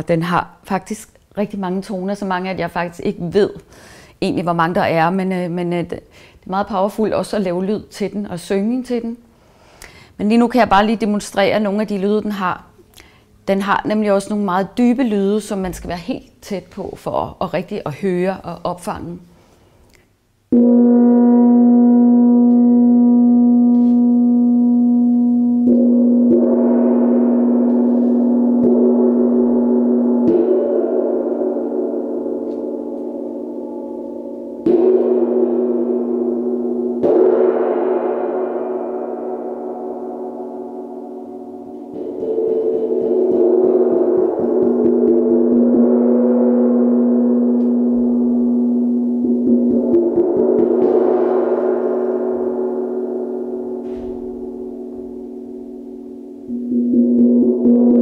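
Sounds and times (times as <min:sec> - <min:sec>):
gong struck with mallet: 0:20.6 - 0:58.0
soft taps on gong: 0:22.4 - 0:22.8, 0:47.4 - 0:48.2.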